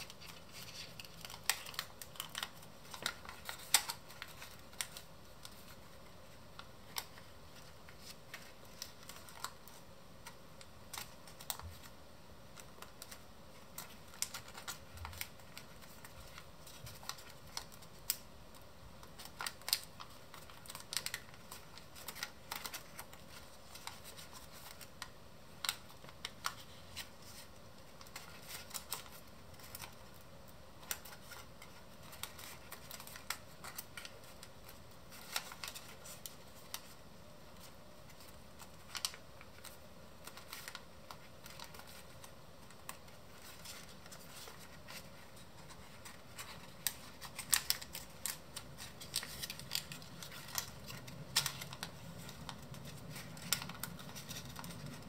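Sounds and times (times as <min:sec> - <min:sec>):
paper being folded and creased: 0:00.0 - 0:55.0.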